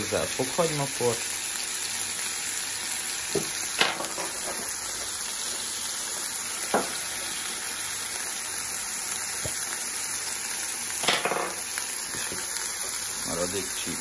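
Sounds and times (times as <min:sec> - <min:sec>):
chicken sizzling in a pan: 0:00.0 - 0:14.0.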